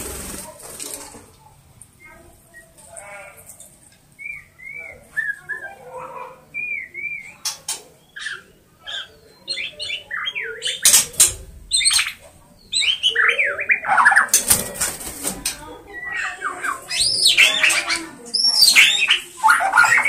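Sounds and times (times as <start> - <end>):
harsh noisy bird calls: 0.0 - 20.0
bird singing whistled notes: 6.5 - 7.4.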